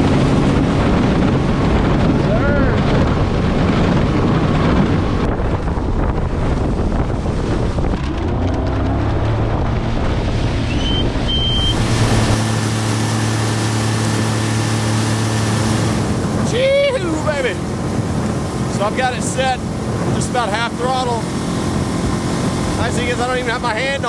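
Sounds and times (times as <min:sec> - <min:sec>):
outboard motor running at speed: 0:00.0 - 0:24.0
wind buffeting microphone: 0:00.0 - 0:24.0
water spraying off hull: 0:05.6 - 0:24.0.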